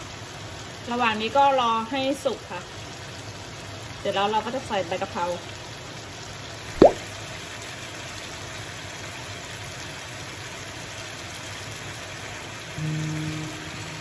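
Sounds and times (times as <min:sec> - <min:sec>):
chicken sizzling in a frying pan: 0:00.0 - 0:14.0
low held tones: 0:12.8 - 0:14.0.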